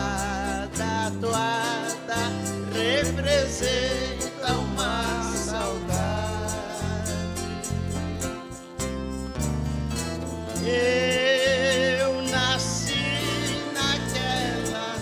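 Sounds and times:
acoustic guitars: 0.0s - 15.0s
bass: 0.0s - 15.0s.

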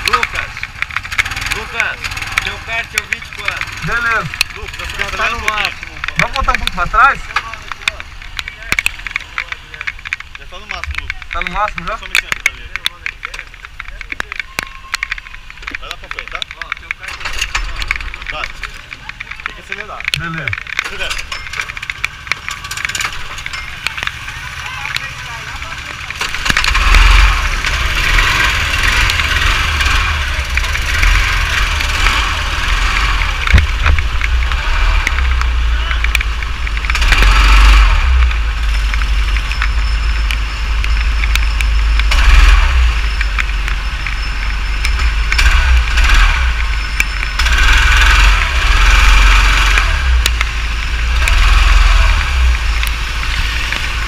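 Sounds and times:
go-kart engine running: 0.0s - 54.0s
heavy low rumble: 0.0s - 54.0s
rain and water spray hissing: 26.7s - 54.0s.

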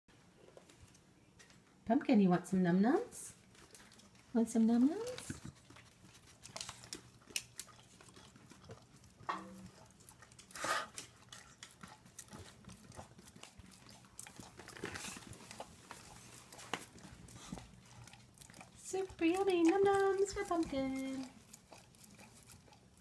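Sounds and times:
dog chewing and smacking: 3.3s - 23.0s.

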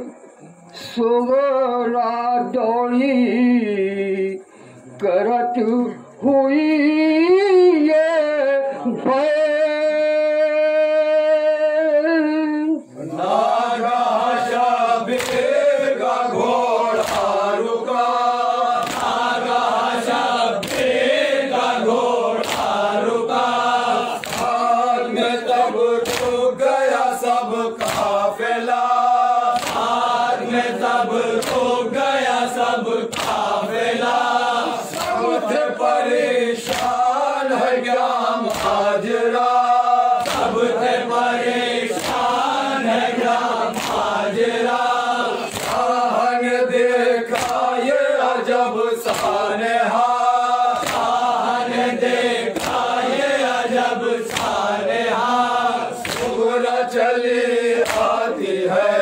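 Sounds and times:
man singing a lament: 0.8s - 4.5s, 5.1s - 19.4s, 20.1s - 51.9s
group of men chanting: 12.8s - 59.0s.

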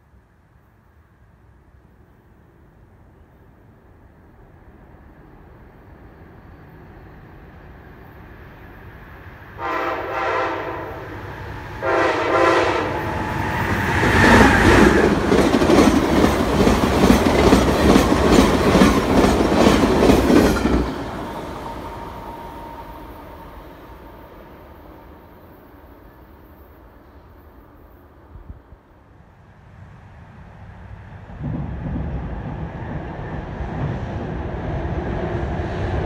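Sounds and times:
passing train rumble: 0.0s - 36.0s
train horn blasts: 9.6s - 11.2s, 11.8s - 13.5s
train wheels clacking over rail joints: 14.0s - 21.3s.

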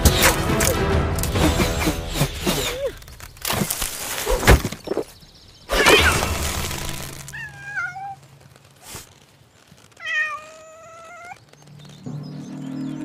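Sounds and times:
music: 0.0s - 2.8s, 11.8s - 13.0s
knocks and crash-like hits: 3.4s - 5.1s
cat meowing: 7.3s - 8.2s, 10.0s - 11.4s.

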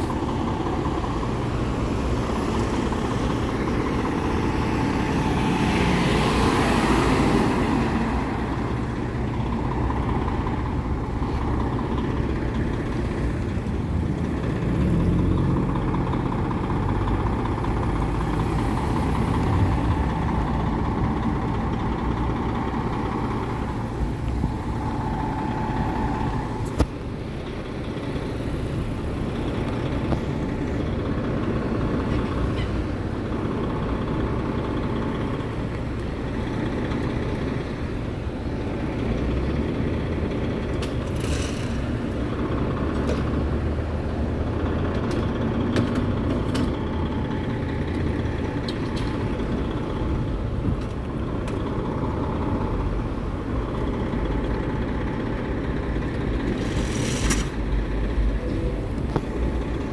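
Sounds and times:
diesel engine idling: 0.0s - 59.9s
brief air hisses: 56.6s - 57.6s.

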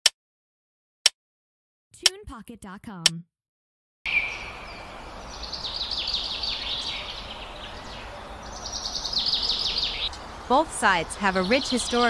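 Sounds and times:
bird chirping: 4.1s - 12.0s
outdoor ambience hiss: 4.1s - 12.0s.

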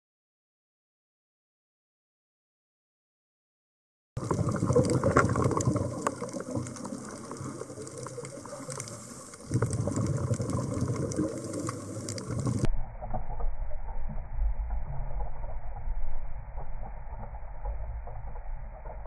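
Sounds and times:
rushing water: 4.2s - 12.7s
crackle of fine clicks underwater: 4.2s - 19.0s
muffled low rumble: 12.2s - 19.0s.

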